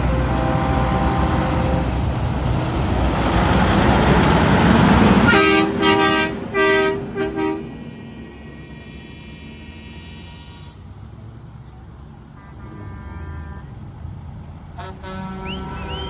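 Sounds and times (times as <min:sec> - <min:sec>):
truck diesel engine passing: 0:00.0 - 0:16.0
air horn blasts: 0:00.3 - 0:01.9, 0:05.3 - 0:07.8, 0:09.6 - 0:10.8, 0:12.3 - 0:13.7, 0:14.8 - 0:16.0.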